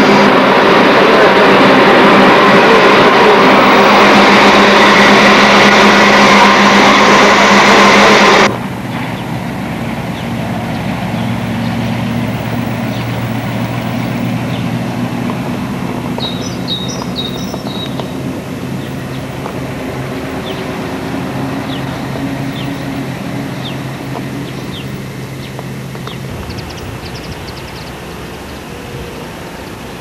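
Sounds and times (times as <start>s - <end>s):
electrical hum: 0.0s - 30.0s
truck engine running: 0.0s - 30.0s
bird chirps: 10.2s - 14.8s, 16.2s - 18.2s, 18.8s - 19.5s, 20.3s - 20.8s, 21.6s - 29.8s.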